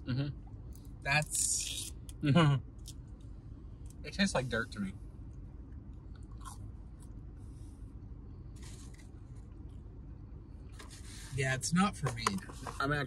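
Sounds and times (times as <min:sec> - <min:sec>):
low room hum: 0:00.0 - 0:13.0
person chewing crunchy food: 0:06.0 - 0:07.1, 0:08.6 - 0:09.7.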